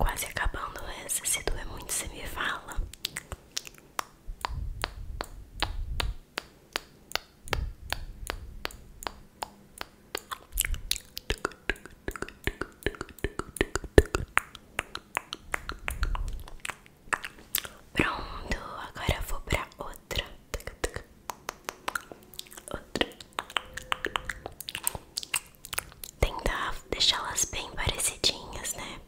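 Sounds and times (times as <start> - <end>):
soft low rumbles: 0.0 - 6.2, 7.4 - 21.1
sharp clicks at microphone: 3.0 - 17.7.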